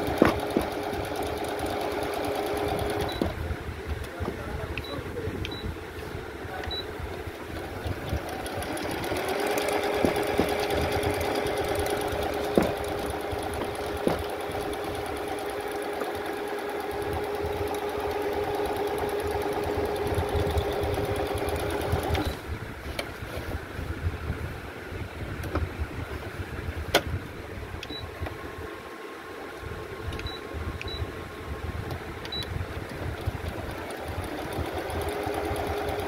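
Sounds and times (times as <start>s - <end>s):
sewing machine stitching: 0.0s - 3.4s, 7.3s - 22.4s, 33.0s - 36.0s.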